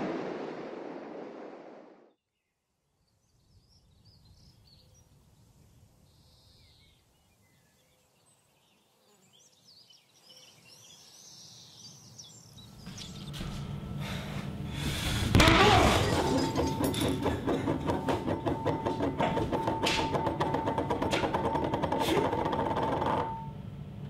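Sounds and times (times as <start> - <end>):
low background hum: 10.3 - 24.0.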